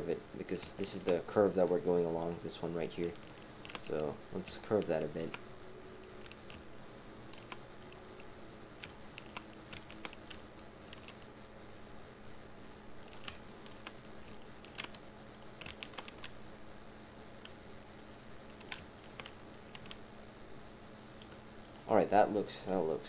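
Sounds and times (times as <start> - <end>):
faint steady hum: 0.0 - 23.0
keyboard and mouse clicking: 3.1 - 5.4, 6.2 - 11.2, 13.0 - 16.4, 17.4 - 20.0.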